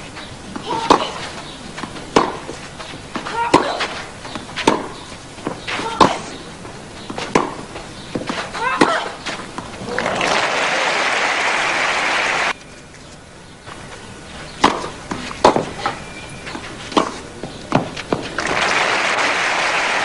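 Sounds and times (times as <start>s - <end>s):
racquet striking tennis ball: 0.5s - 6.4s, 7.0s - 10.0s, 14.6s - 18.6s
crowd applauding: 9.8s - 12.5s, 18.4s - 20.0s.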